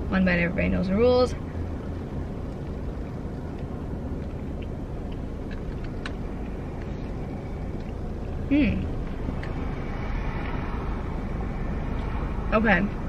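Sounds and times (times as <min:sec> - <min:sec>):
car cabin hum: 0:00.0 - 0:13.0
person chewing: 0:02.3 - 0:09.7.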